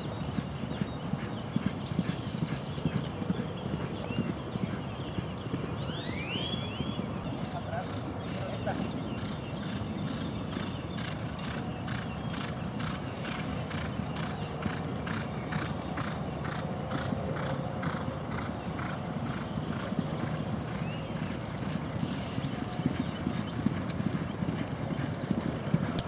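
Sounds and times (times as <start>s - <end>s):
hooves striking the track: 0.0s - 26.0s.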